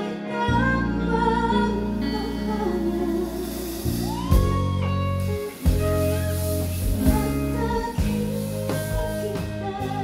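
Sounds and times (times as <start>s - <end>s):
live band music: 0.0s - 10.0s.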